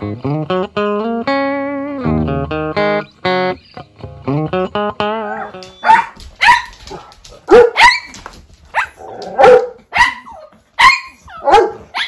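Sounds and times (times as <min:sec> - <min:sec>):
small dog yapping: 0:05.4 - 0:12.0.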